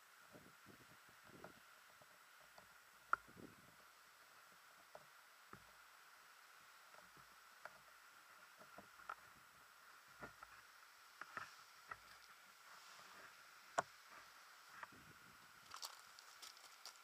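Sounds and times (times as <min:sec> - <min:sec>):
faint steady hiss: 0:00.0 - 0:17.0
shoes crunching on gravel: 0:15.6 - 0:17.0.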